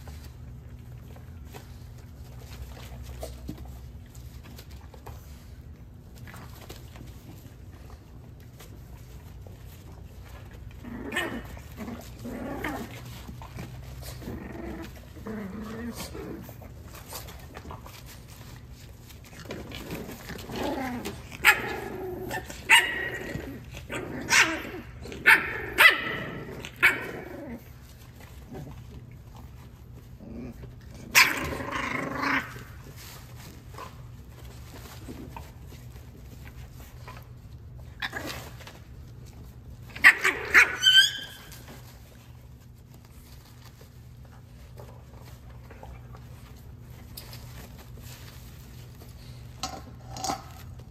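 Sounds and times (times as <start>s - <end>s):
puppies yapping and growling: 8.5s - 29.6s, 39.8s - 42.2s.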